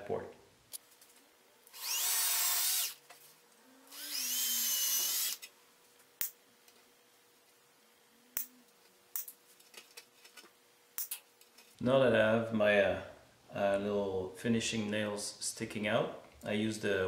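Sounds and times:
cordless drill whining: 1.7 - 3.0, 3.9 - 5.5.

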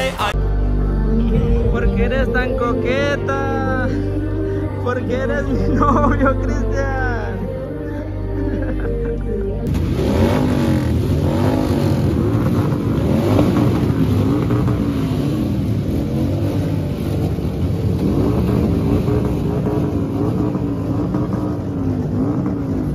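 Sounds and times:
motorcycle engines revving: 1.8 - 22.9.

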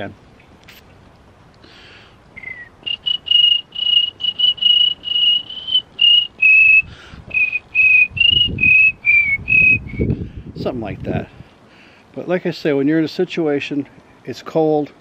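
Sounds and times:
man whistling cricket chirps: 2.4 - 10.2.

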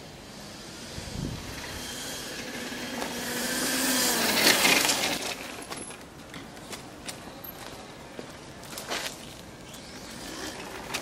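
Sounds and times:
electric motor whine: 0.0 - 5.2.

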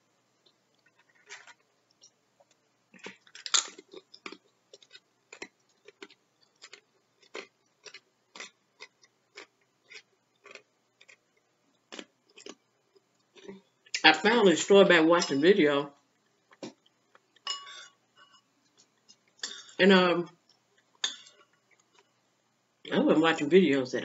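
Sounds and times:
tortilla chip crunching: 3.0 - 14.0.

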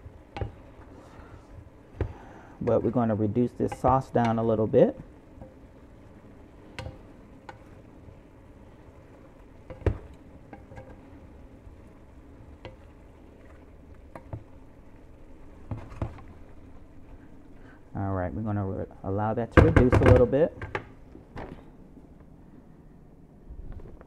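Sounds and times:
sauce sizzling in a skillet: 0.0 - 17.9
wooden spatula knocking on pan: 0.3 - 0.6, 3.7 - 4.5, 6.8 - 7.6, 19.6 - 20.9.

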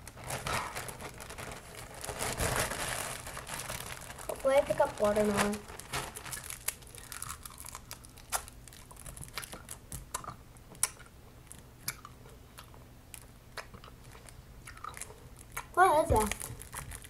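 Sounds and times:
person chewing candy: 6.1 - 17.0
mouth clicks and smacks: 8.0 - 11.2, 11.8 - 12.8.

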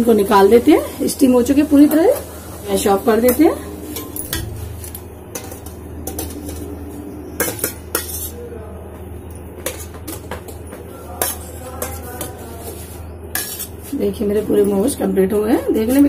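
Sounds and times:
steady low hum: 0.0 - 16.0
metal tongs clinking on steel tray: 9.3 - 12.4.

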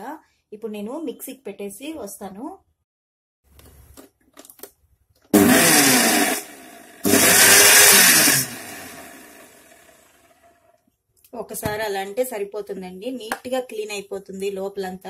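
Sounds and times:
mixer grinder running: 5.4 - 10.2.

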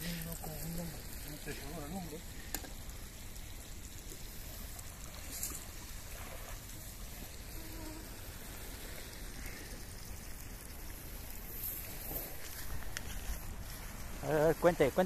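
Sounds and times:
fish frying in oil: 0.0 - 15.0.

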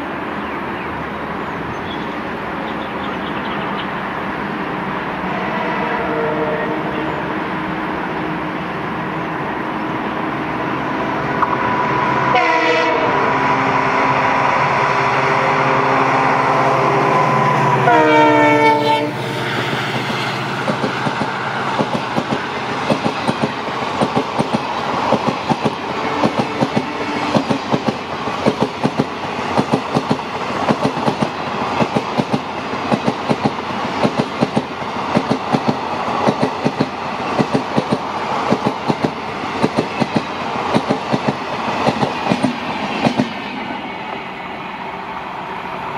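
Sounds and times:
diesel locomotive engine: 0.0 - 45.9
train horn: 5.2 - 7.4, 12.1 - 19.8, 25.9 - 27.5
train wheels clickety-clack: 19.5 - 43.7.

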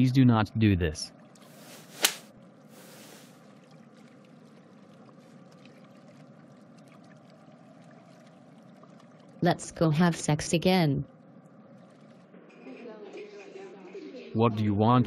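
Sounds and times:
brief hiss: 1.5 - 3.3
sharp click: 2.0 - 2.2.

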